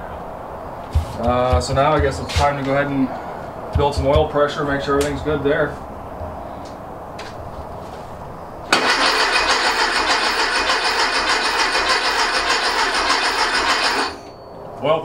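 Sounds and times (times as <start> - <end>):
starter motor cranking engine: 8.7 - 14.3.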